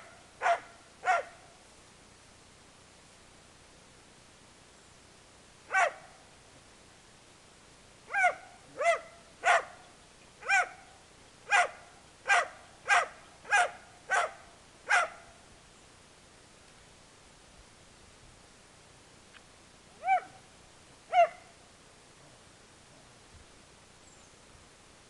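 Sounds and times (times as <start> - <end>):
dog barking: 0.4 - 1.4, 5.7 - 6.1, 8.1 - 9.8, 10.4 - 10.8, 11.5 - 15.3, 20.0 - 20.4, 21.1 - 21.4.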